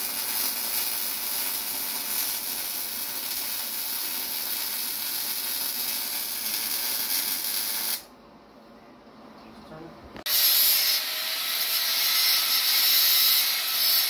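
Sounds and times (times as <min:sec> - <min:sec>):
welding arc hissing: 0:00.0 - 0:08.1.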